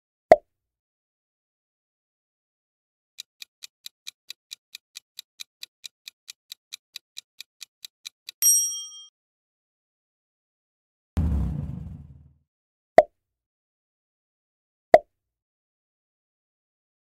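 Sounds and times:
clock-like timer ticks: 3.2s - 8.4s.

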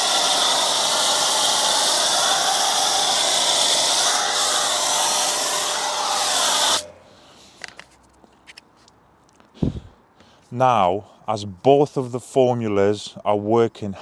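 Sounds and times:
pressure washer foam spray hissing: 0.0s - 6.9s.

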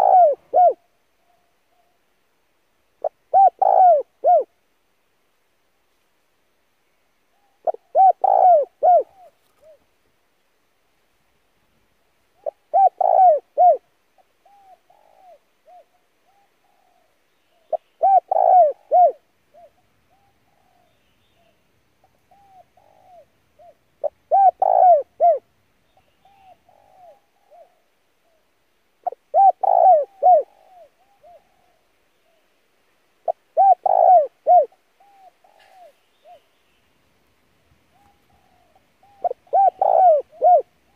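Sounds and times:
dove cooing: 0.0s - 1.9s, 3.0s - 4.5s, 7.4s - 9.9s, 12.4s - 28.4s, 29.0s - 32.4s, 33.2s - 36.5s, 37.9s - 40.9s.

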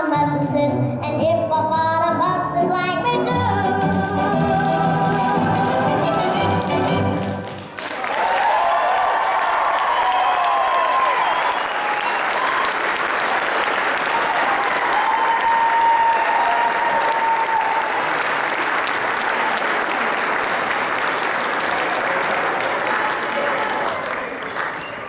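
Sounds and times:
audience applauding: 5.0s - 25.0s.

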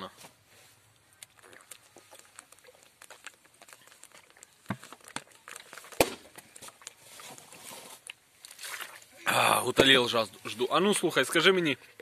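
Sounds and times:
man gulping water: 1.2s - 7.0s
plastic bottle crackling: 1.2s - 9.1s.

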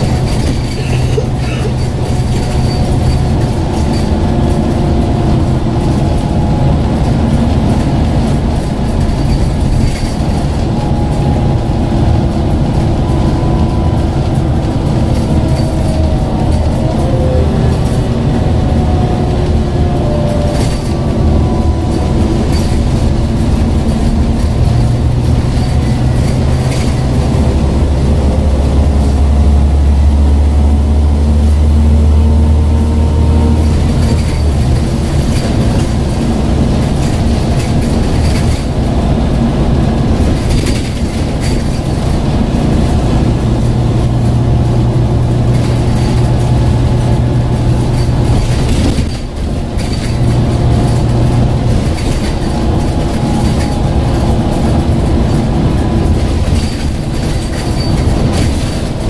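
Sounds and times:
deep low hum: 0.0s - 38.2s
bus body rattling: 0.0s - 59.0s
bus engine drone with whine: 0.0s - 59.0s
road noise: 0.0s - 59.0s.

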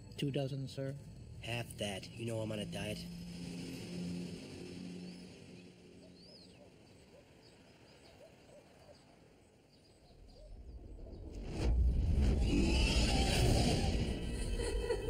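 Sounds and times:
rush of noise: 1.2s - 6.3s, 10.8s - 15.0s
faint bird chirps: 4.9s - 11.3s.

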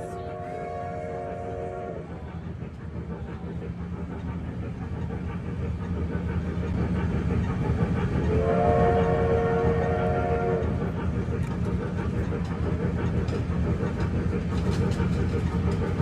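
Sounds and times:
electric train rumbling: 0.0s - 16.0s
steam whistle chord: 8.4s - 10.6s.

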